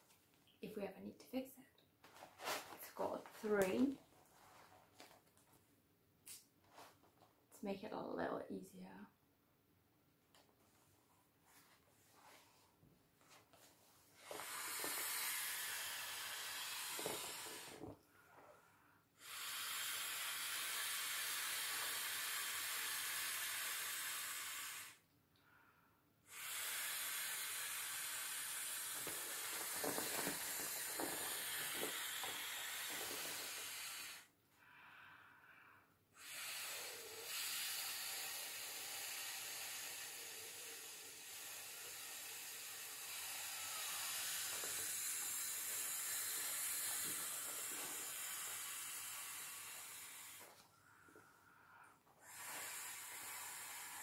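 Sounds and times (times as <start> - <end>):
breath blown into valve: 14.2 - 25.6, 26.2 - 54.0.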